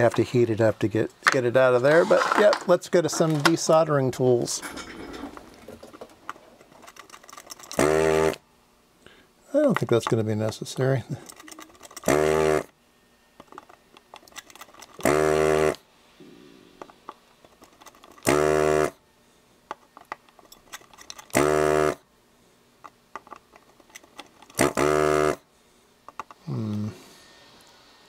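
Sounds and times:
vacuum pump buzzing: 7.7s - 8.4s, 11.9s - 12.8s, 14.9s - 16.4s, 18.1s - 19.0s, 21.2s - 22.1s, 24.4s - 25.5s.

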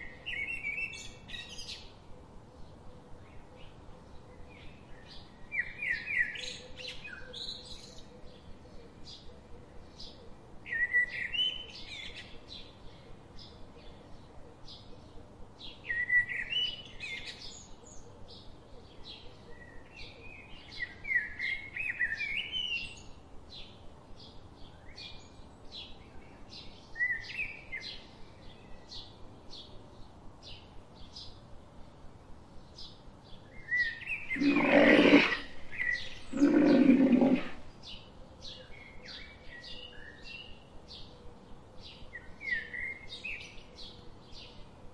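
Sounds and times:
small birds chirping phrases: 0.0s - 44.8s
rough breathy blasts: 34.4s - 37.7s.

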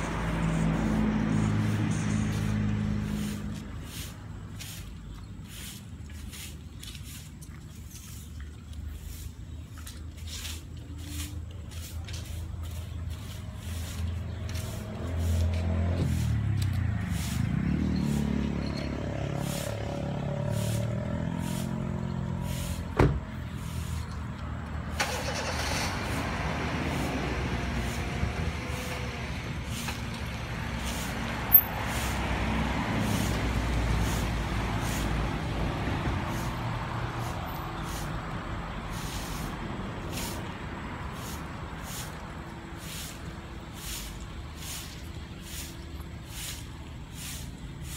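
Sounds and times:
car engine manoeuvring: 24.8s - 31.8s.

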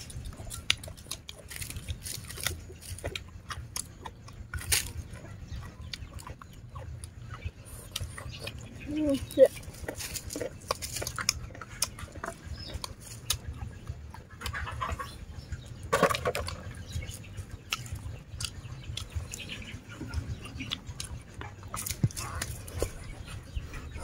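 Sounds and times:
chewing and crunching food: 0.0s - 24.0s.

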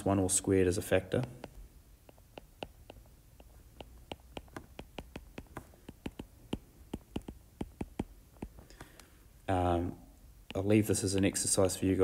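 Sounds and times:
stylus clicking on tablet screen: 1.2s - 9.2s, 10.4s - 10.7s.

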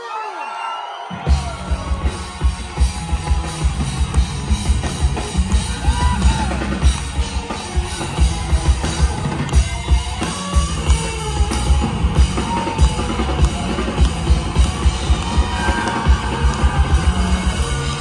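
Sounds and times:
rock band playing live: 1.0s - 18.0s.

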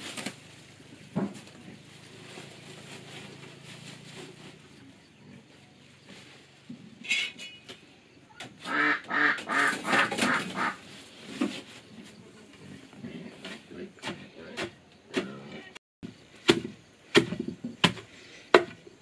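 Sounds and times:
fowl calling: 8.6s - 11.0s.

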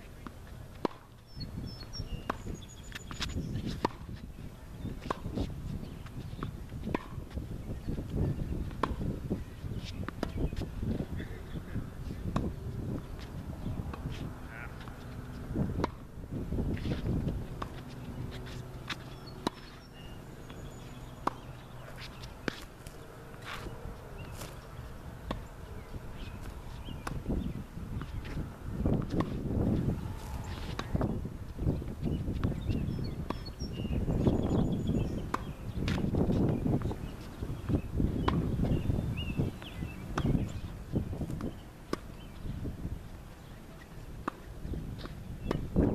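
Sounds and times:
tennis balls struck by rackets: 0.0s - 42.8s, 43.4s - 45.9s
balls bouncing on hard court: 4.8s - 42.3s
steady low rumbling noise: 10.7s - 41.2s.

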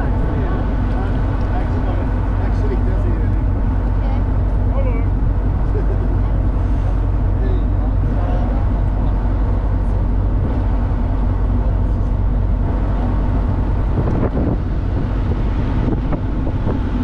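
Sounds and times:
ship engine drone: 0.0s - 17.0s
water noise: 0.0s - 17.0s
wind noise on microphone: 10.1s - 17.0s.

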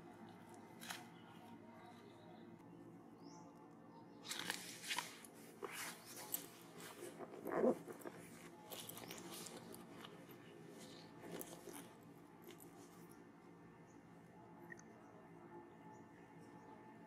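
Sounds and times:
monkey crunching and chewing food: 6.2s - 13.2s.

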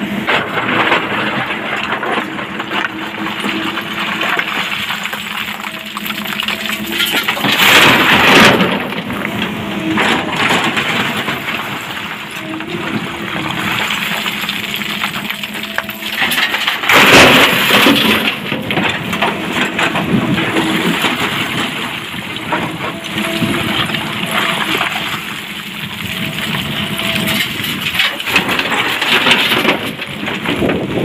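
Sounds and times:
excavator engine running: 0.0s - 31.0s
rock crashing into truck bed: 0.6s - 9.3s, 13.2s - 22.8s.

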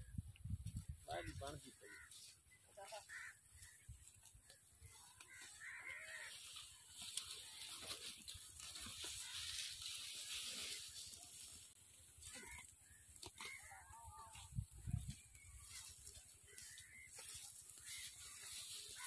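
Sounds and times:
soft animal calls: 1.1s - 8.0s, 12.1s - 14.5s.

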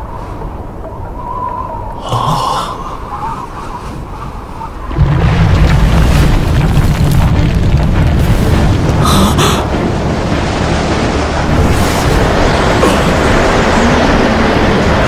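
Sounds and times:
rumbling rush of power: 4.8s - 15.0s.

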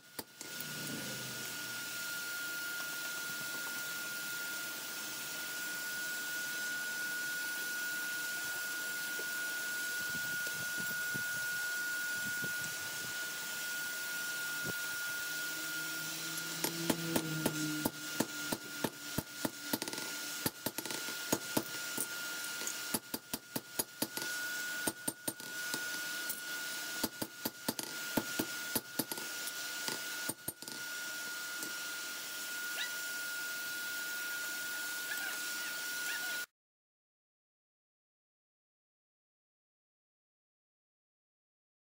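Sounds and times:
steady high tone: 9.4s - 20.4s.

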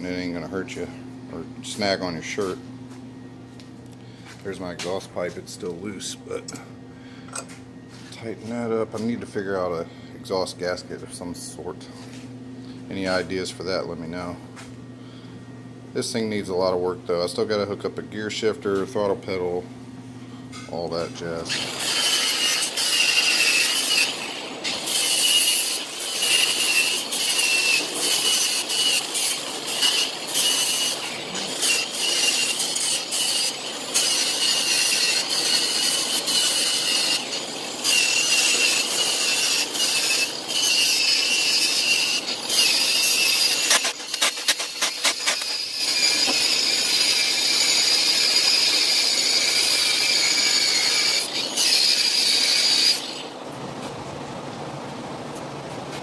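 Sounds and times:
angle grinder grinding steel: 20.7s - 53.4s.

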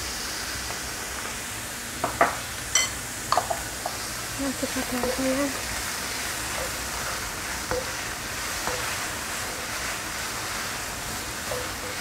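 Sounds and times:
meat sizzling in a wok: 0.0s - 12.0s
spatula scraping a pan: 6.5s - 12.0s.

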